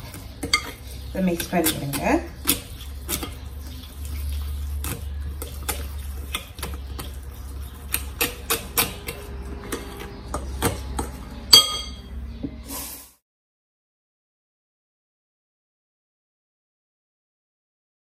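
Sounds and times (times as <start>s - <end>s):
spoon stirring batter in glass bowl: 0.0s - 12.1s
spoon clinking on glass: 11.5s - 12.1s.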